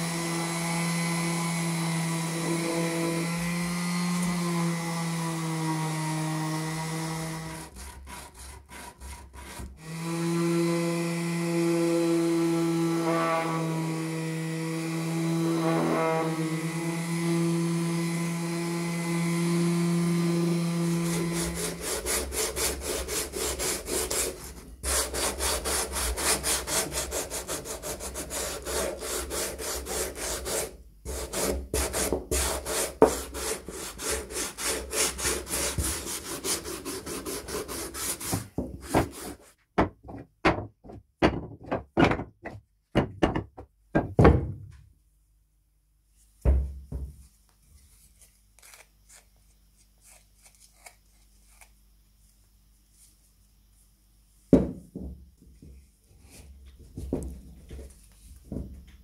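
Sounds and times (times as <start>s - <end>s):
hand tool strokes on wood: 20.6s - 39.6s.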